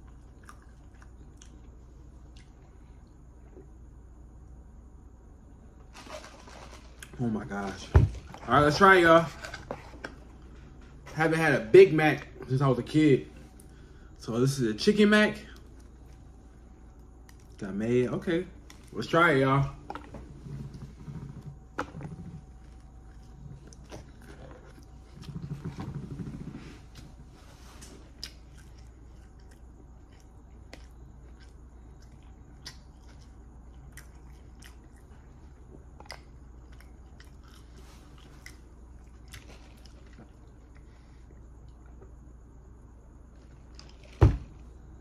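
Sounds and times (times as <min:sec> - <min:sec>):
biting and chewing food: 0:00.0 - 0:02.6, 0:19.7 - 0:27.2, 0:27.8 - 0:42.4.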